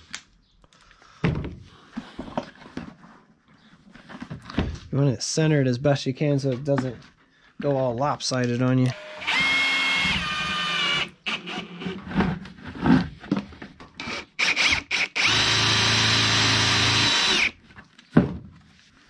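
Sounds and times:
cordless drill driving screws: 8.8 - 12.0, 14.0 - 17.6
plastic clattering and knocking: 17.7 - 18.7.

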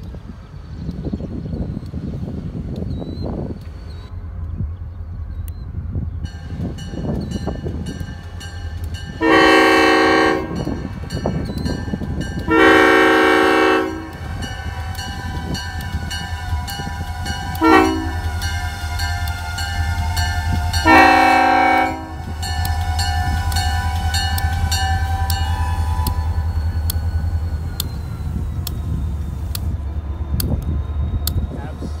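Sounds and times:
locomotive air horn blasts: 9.2 - 10.8, 12.4 - 26.6.

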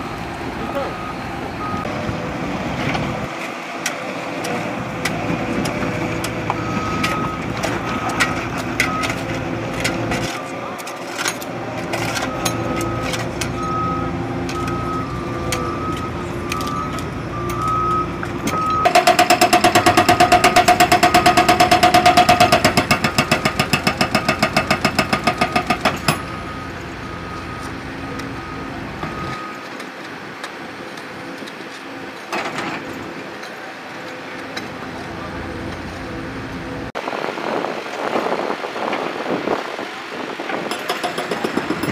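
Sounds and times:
hydraulic hammer pounding concrete: 18.8 - 26.2, 40.5 - 41.9.

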